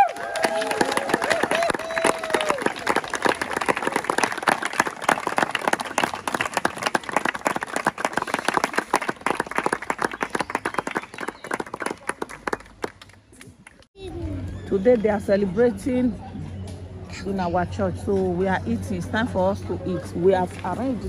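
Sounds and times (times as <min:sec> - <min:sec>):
crowd applauding: 0:00.0 - 0:13.9.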